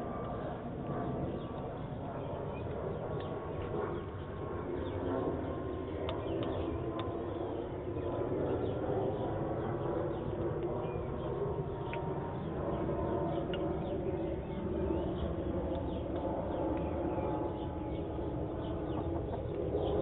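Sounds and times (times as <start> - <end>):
hens murmuring: 18.8 - 20.0.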